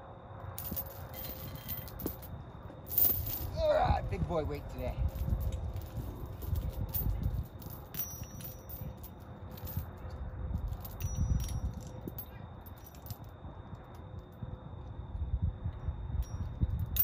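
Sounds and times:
low uneven rumble: 0.0 - 17.0
metallic jingling: 0.6 - 3.9, 4.5 - 13.3.

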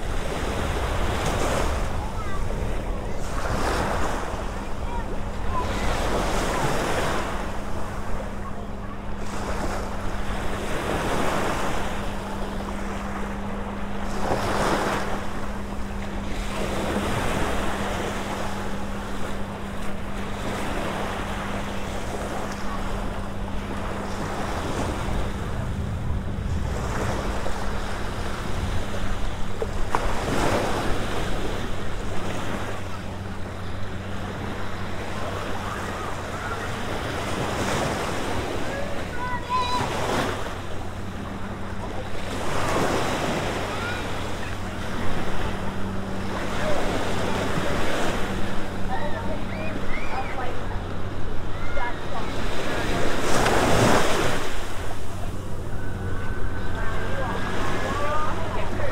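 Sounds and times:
wind buffeting microphone: 0.0 - 34.1
waves washing onto sandy beach: 0.0 - 58.9.

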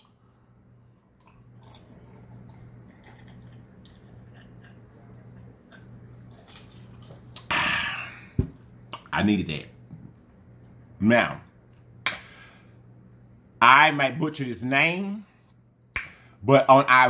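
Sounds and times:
man gulping a drink: 1.2 - 9.1
man sighing ahh: 7.5 - 8.4.

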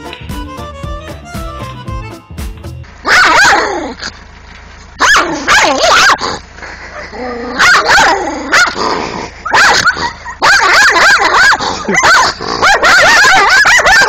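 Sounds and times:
dog barking: 3.0 - 3.9, 5.0 - 8.8, 9.4 - 14.0.

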